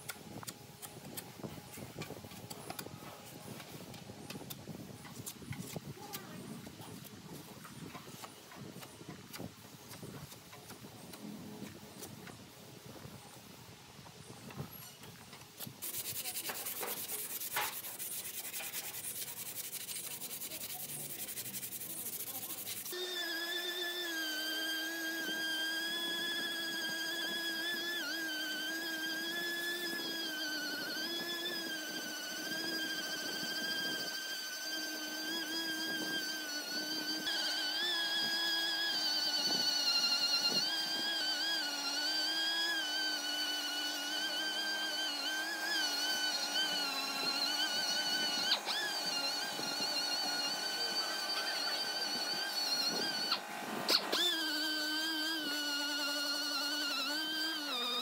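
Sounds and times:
orbital sander: 0:15.6 - 0:58.0.

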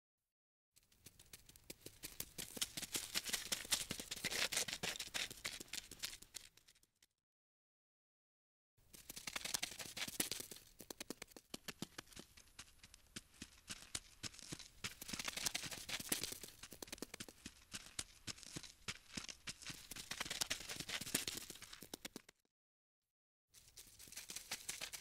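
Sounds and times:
insect scurrying clicks and scratches: 0:08.9 - 0:12.7, 0:13.6 - 0:22.3, 0:23.7 - 0:25.0.

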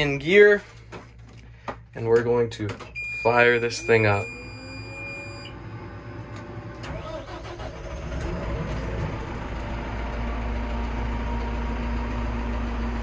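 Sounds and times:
diesel engine idling: 0:03.8 - 0:13.0
engine starter cranking: 0:06.7 - 0:09.0.

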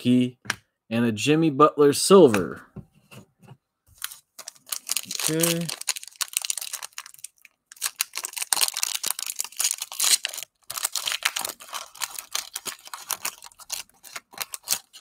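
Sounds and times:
plastic wrapper crinkling: 0:04.0 - 0:15.0.

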